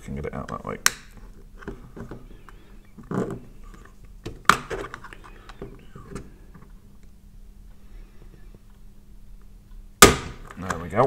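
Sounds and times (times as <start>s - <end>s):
sharp plastic click: 0.8s - 1.1s.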